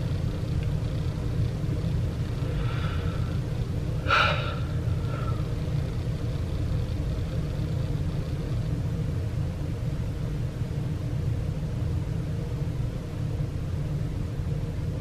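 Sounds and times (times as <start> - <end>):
low background rumble: 0.0 - 15.0
person sniffling: 4.0 - 5.4.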